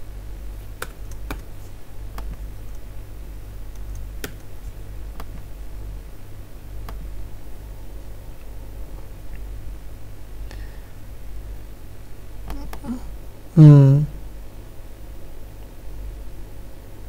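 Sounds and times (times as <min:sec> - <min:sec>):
low electrical hum: 0:00.0 - 0:17.0
keyboard and mouse clicks: 0:00.8 - 0:01.5, 0:03.7 - 0:05.5.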